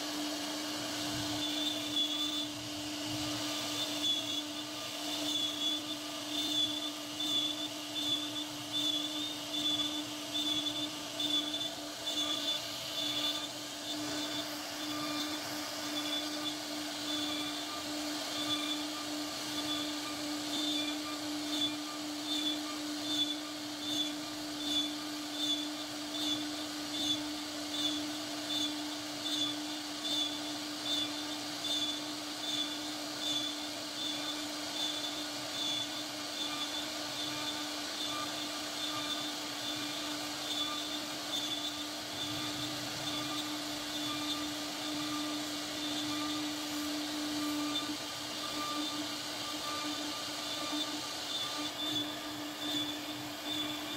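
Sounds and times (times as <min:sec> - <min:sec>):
router spindle carving wood: 0:00.0 - 0:53.9.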